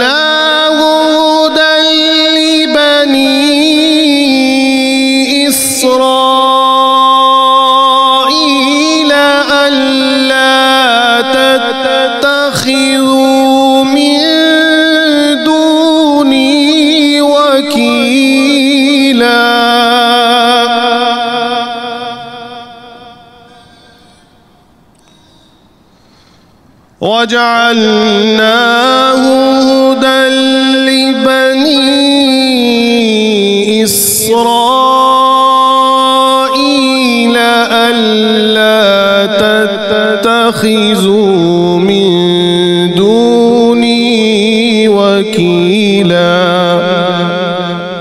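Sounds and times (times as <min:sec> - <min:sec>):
man reciting melodically: 0:00.0 - 0:25.7, 0:27.0 - 0:48.0
sharp breath: 0:23.5 - 0:26.9.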